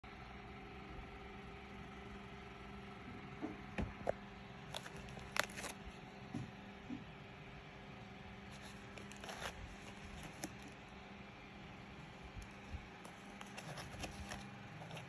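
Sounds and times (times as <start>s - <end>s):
steady low hum: 0.1s - 15.0s
plastic sleeves crinkling: 4.7s - 6.0s, 8.4s - 10.9s, 12.1s - 15.0s.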